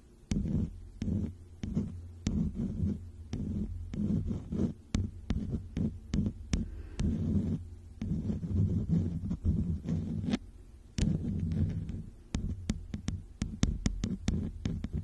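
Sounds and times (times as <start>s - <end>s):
brush rubbing on microphone: 0.3s - 10.4s, 11.0s - 15.0s.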